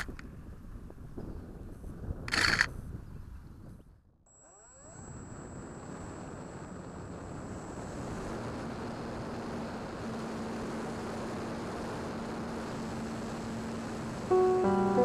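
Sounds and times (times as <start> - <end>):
electric motor and propeller drone: 4.3 - 14.6.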